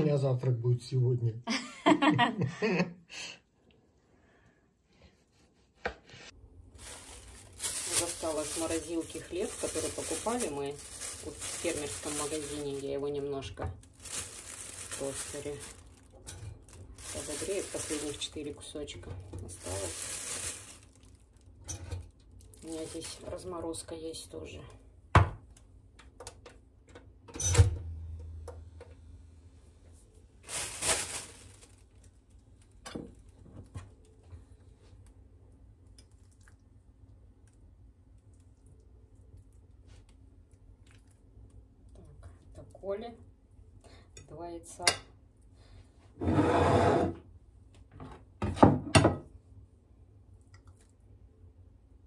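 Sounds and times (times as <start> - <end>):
tableware scraping: 46.2 - 47.2.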